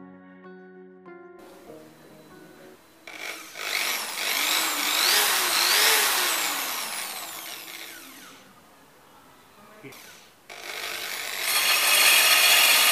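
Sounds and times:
electric drill whining: 0:03.0 - 0:08.6, 0:09.9 - 0:12.9.

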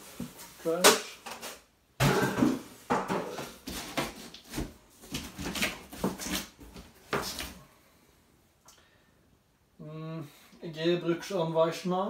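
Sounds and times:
cardboard scraping and rustling: 0:03.4 - 0:07.6.

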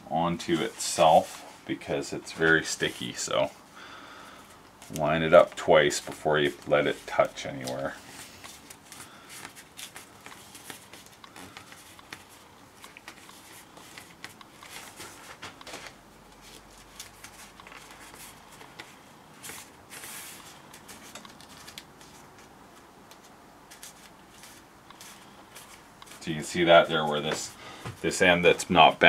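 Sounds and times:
tape rustling and crackling: 0:04.4 - 0:29.0.

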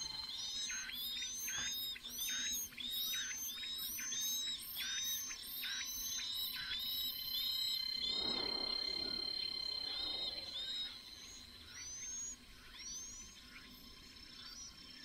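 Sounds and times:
insect drone: 0:00.0 - 0:15.0
rising high bird calls: 0:07.9 - 0:13.4.

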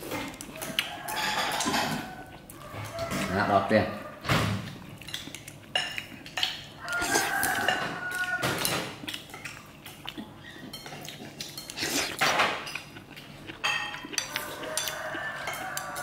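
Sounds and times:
metal utensils clinking on dishes: 0:00.0 - 0:02.2, 0:13.6 - 0:16.0.

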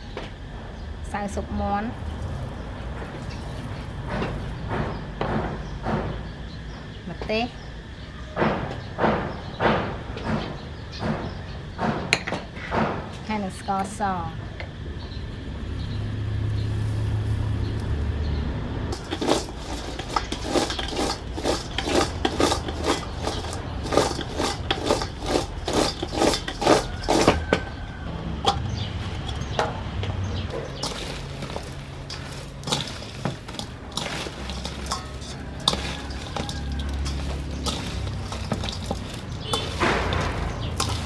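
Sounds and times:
metal utensil clattering on cookware: 0:18.9 - 0:27.7, 0:28.4 - 0:29.8, 0:30.4 - 0:41.0.

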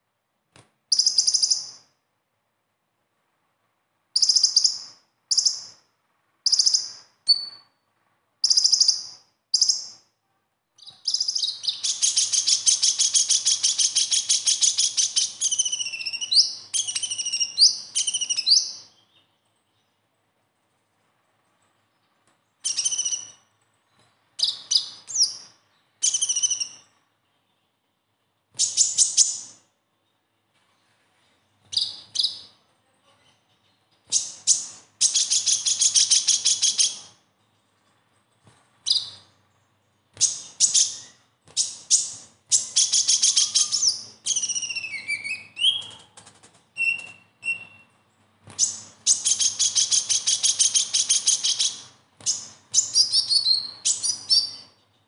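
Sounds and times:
bird chirping and trilling: 0:00.9 - 0:02.0, 0:04.2 - 0:07.8, 0:08.4 - 0:10.1, 0:10.8 - 0:20.0, 0:21.9 - 0:27.8, 0:28.6 - 0:30.2, 0:31.6 - 0:37.2, 0:38.8 - 0:55.0.

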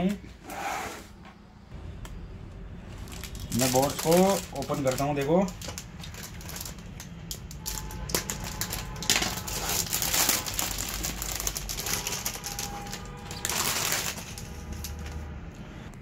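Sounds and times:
plastic bag crinkling and rustling: 0:02.9 - 0:15.3.

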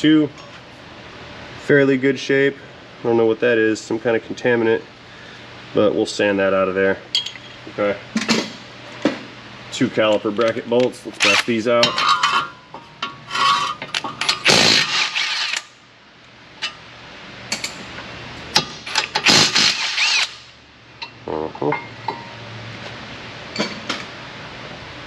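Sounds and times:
impact wrench spinning bolts: 0:13.4 - 0:15.7, 0:18.6 - 0:20.5.

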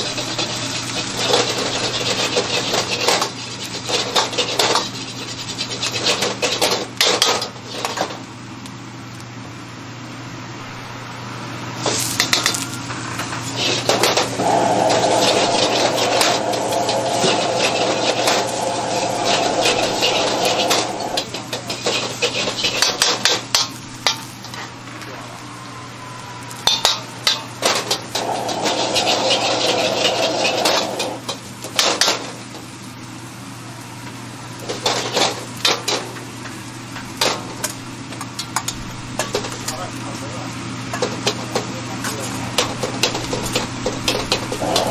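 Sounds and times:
food sizzling: 0:00.0 - 0:06.6, 0:11.7 - 0:39.7, 0:42.4 - 0:44.9
steady low hum: 0:09.8 - 0:31.4
metal ladle scraping wok: 0:13.5 - 0:23.0, 0:26.6 - 0:31.3, 0:44.5 - 0:44.9.

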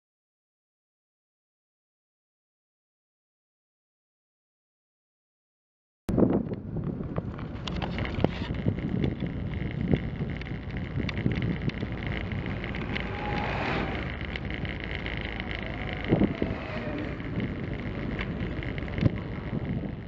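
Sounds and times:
wind rushing over camera: 0:06.1 - 0:20.0
engine and road noise: 0:06.2 - 0:20.0.

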